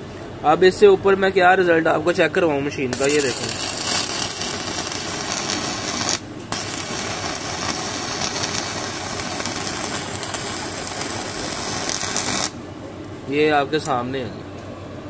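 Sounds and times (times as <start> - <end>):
welding arc crackling: 2.9 - 12.6.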